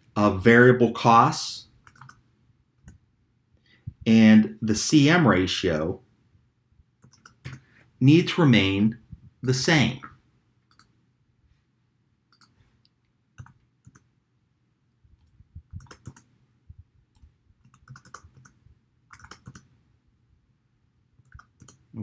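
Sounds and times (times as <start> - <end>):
mouse clicks: 12.3 - 14.1
keyboard keystrokes: 15.7 - 16.3, 17.2 - 19.7.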